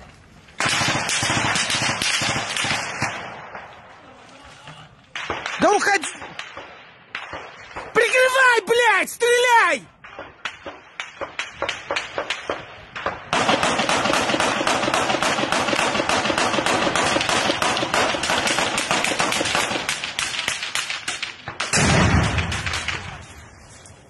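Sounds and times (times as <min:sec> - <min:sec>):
rapid automatic gunfire: 0:00.6 - 0:03.4, 0:13.3 - 0:22.9
gunshots: 0:00.6 - 0:03.9, 0:05.1 - 0:08.8, 0:10.0 - 0:23.4.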